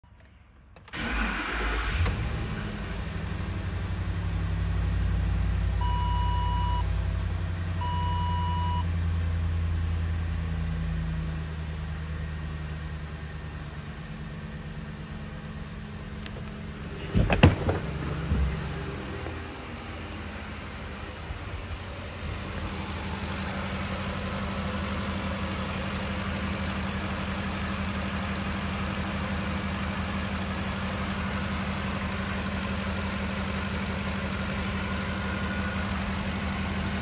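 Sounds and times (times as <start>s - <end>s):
car engine idling: 0.8s - 37.0s
short electronic beeps: 5.8s - 6.8s, 7.8s - 8.9s.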